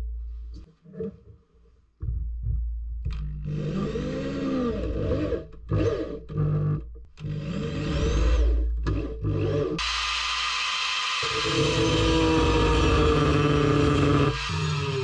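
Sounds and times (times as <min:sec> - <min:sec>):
angle grinder grinding: 0:03.5 - 0:15.0
power drill grinding steel: 0:03.5 - 0:15.0.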